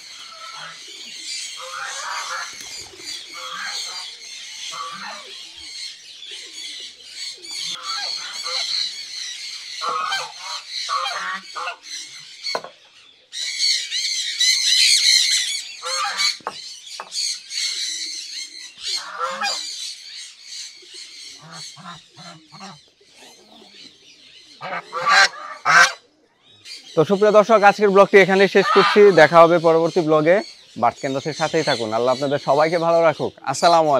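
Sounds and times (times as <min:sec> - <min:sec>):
geese honking: 0:00.0 - 0:12.0, 0:14.9 - 0:16.4, 0:18.9 - 0:19.8, 0:21.3 - 0:22.8, 0:24.6 - 0:26.1, 0:27.0 - 0:33.9
high bird calls: 0:00.0 - 0:33.9.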